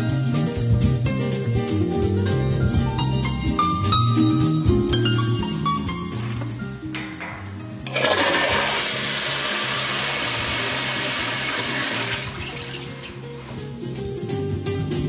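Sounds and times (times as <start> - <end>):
toilet flushing: 7.9 - 13.3.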